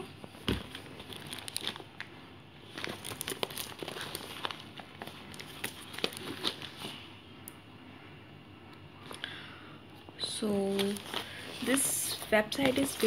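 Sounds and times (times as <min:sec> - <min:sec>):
plastic mailer bag crinkling: 0:00.5 - 0:07.0, 0:10.5 - 0:13.0.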